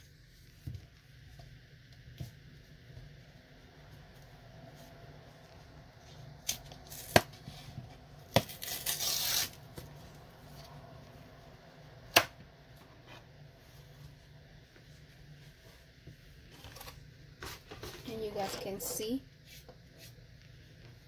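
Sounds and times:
paperboard ripping: 0:08.4 - 0:09.6.

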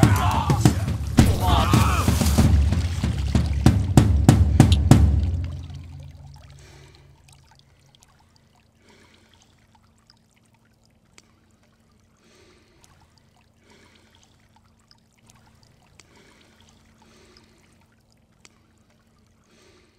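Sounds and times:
music: 0:00.0 - 0:06.0
water lapping and trickling: 0:00.0 - 0:19.9.

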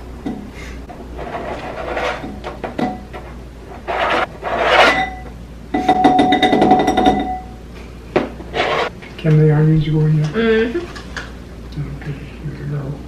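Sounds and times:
knife scraping plastic cutting mat: 0:01.2 - 0:02.6, 0:03.2 - 0:05.0
steady high ringing tone: 0:04.8 - 0:07.7.

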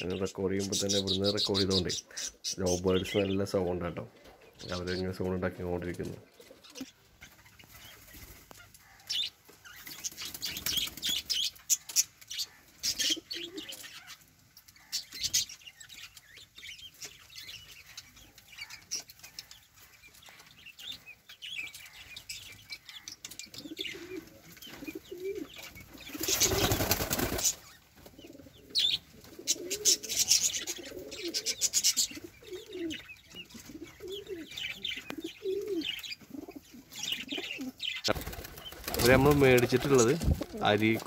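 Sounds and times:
lovebirds chirping: 0:00.0 - 0:41.0
pigeons flapping wings: 0:26.1 - 0:27.7, 0:38.1 - 0:41.0.

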